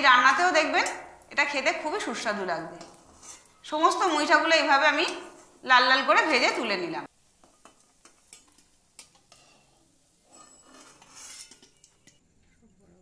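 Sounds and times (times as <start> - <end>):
spatula scraping pan: 2.5 - 5.6, 7.4 - 12.3
spatula clinking on metal pan: 10.2 - 12.2.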